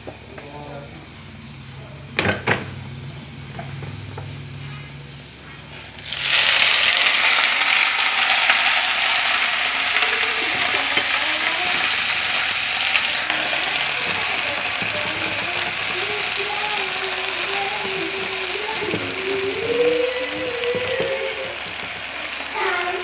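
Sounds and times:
food sizzling in hot oil: 0:05.7 - 0:23.0.

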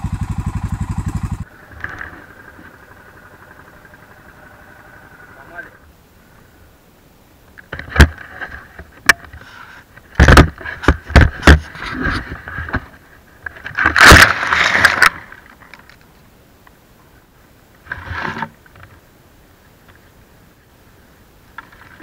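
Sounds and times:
rustling through branches and grass: 0:07.8 - 0:16.3
camera knocks and scrapes: 0:10.2 - 0:12.9.

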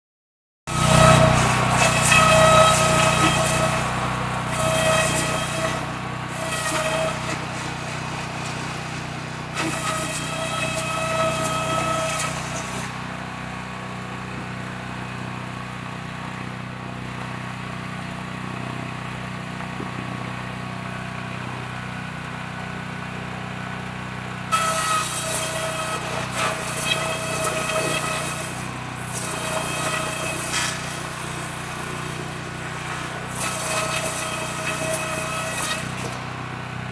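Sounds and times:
saw whining through bamboo: 0:00.7 - 0:16.5, 0:24.3 - 0:36.9
small gasoline engine running: 0:00.7 - 0:36.9.

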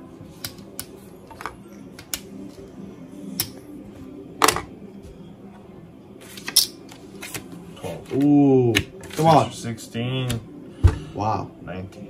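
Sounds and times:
cards being handled: 0:06.2 - 0:09.5.

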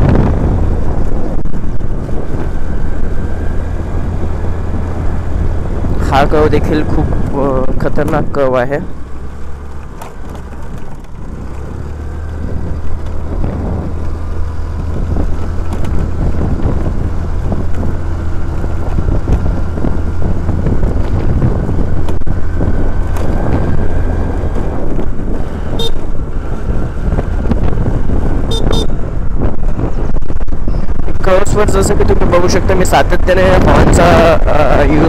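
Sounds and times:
scooter engine rumble: 0:00.0 - 0:35.0
wind: 0:00.0 - 0:35.0
scooter horn beeps: 0:25.8 - 0:26.0, 0:28.5 - 0:29.0.

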